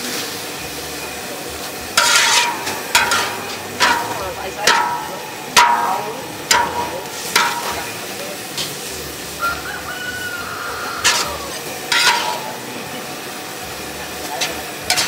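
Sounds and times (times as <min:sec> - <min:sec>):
food sizzling in a pan: 0:00.0 - 0:15.0
metal utensil knocking on pan: 0:02.0 - 0:08.0, 0:11.0 - 0:12.6.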